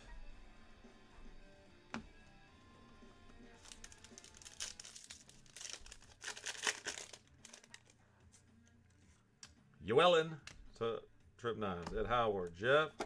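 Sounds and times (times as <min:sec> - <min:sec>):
foil wrapper tearing and crinkling: 0:03.5 - 0:07.9.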